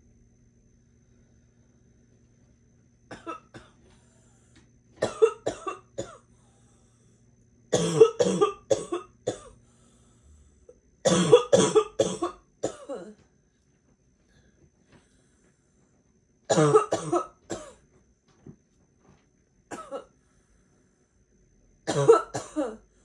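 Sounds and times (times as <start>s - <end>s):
girl's harsh barking cough: 3.1s - 3.7s, 5.0s - 6.2s, 7.7s - 9.5s, 11.0s - 13.2s, 16.5s - 17.8s, 19.7s - 20.1s, 21.9s - 22.8s.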